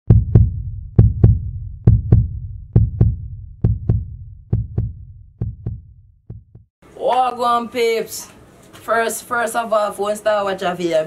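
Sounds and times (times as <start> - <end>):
heartbeat thumps: 0.1 - 6.7.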